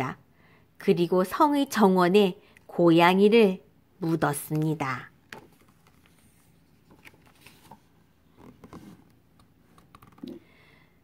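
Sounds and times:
page turning rustle: 0:05.3 - 0:10.3.

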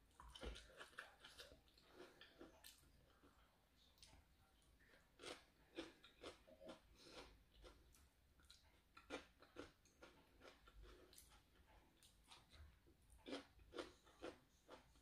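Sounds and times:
person chewing: 0:00.1 - 0:15.0.

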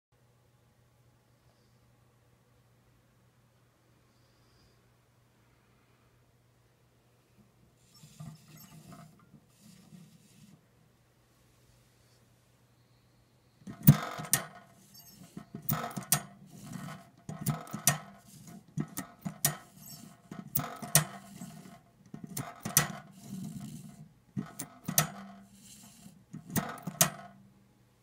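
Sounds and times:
type wheel rattle: 0:13.7 - 0:27.4
typewriter metallic clacks: 0:13.7 - 0:27.4.

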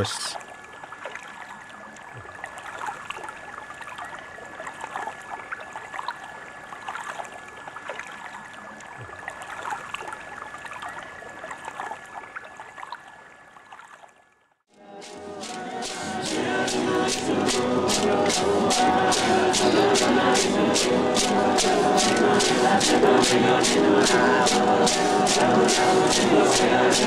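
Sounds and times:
river water splashing around boat: 0:00.0 - 0:14.4.

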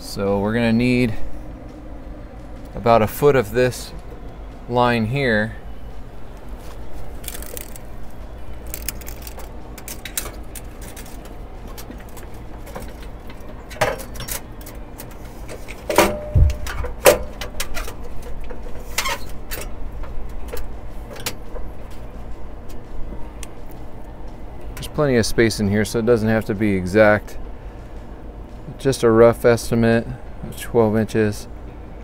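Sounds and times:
steady low rumble: 0:00.0 - 0:32.0
hands moving plastic lines: 0:06.5 - 0:14.8.

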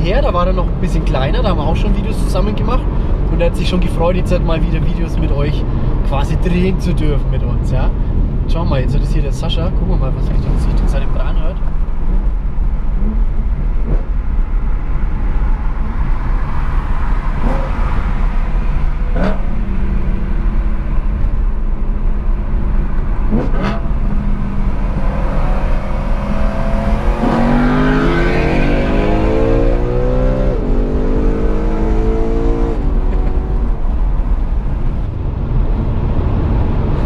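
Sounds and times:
road rumble: 0:00.0 - 0:37.0
car engine accelerating: 0:10.1 - 0:37.0.

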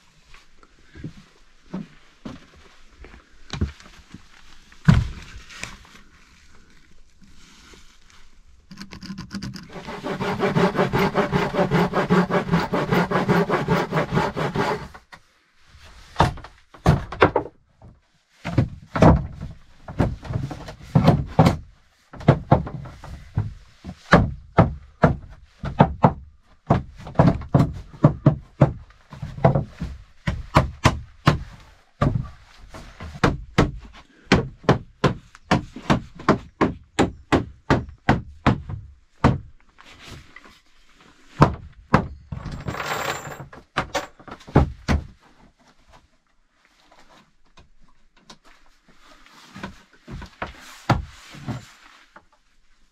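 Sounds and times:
steady rasping: 0:08.7 - 0:15.0
hammer knocking floorboards: 0:24.1 - 0:32.3.

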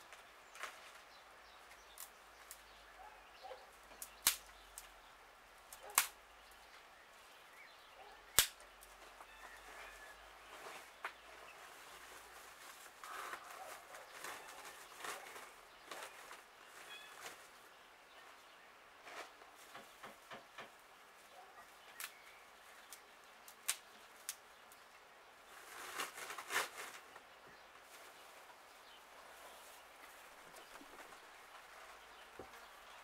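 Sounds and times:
loud sharp cracks: 0:04.1 - 0:04.5, 0:05.9 - 0:06.2, 0:08.3 - 0:08.6.

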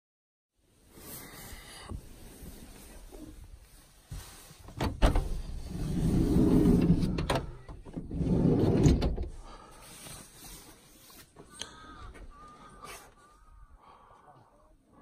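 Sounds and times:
sliding door rumbling: 0:04.8 - 0:09.6.

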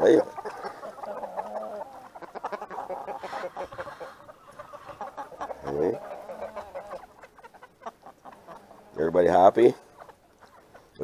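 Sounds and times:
chickens clucking and calling: 0:00.0 - 0:11.0.

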